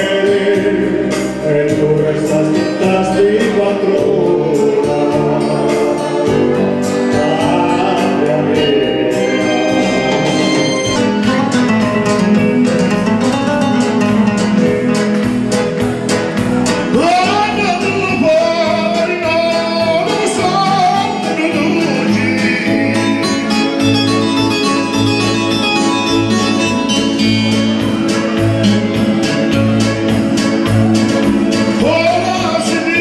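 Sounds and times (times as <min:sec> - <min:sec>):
man singing into a microphone: 0:00.0 - 0:15.5, 0:16.8 - 0:23.9, 0:31.7 - 0:33.0
electronic keyboard: 0:00.0 - 0:33.0
strummed acoustic guitar: 0:00.0 - 0:33.0
steady beat: 0:09.4 - 0:33.0.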